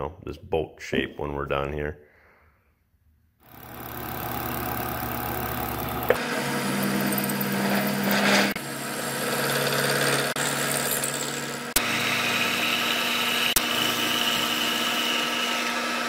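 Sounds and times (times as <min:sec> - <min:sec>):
high steady whine: 0:03.5 - 0:10.3
milling machine cutting metal: 0:03.6 - 0:16.0.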